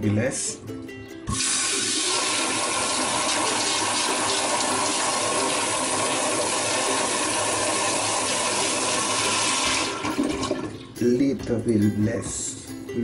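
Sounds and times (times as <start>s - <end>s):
toilet flushing: 1.3s - 11.0s.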